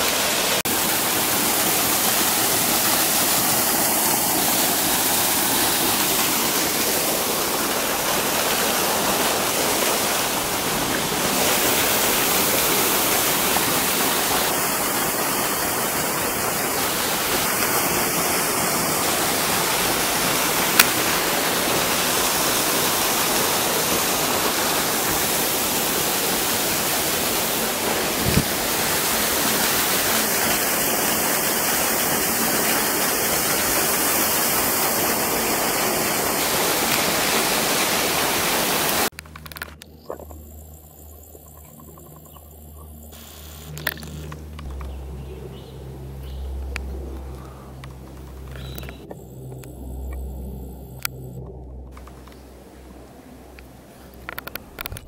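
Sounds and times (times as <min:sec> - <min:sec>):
waterfall rushing over rocks: 0:00.0 - 0:39.1.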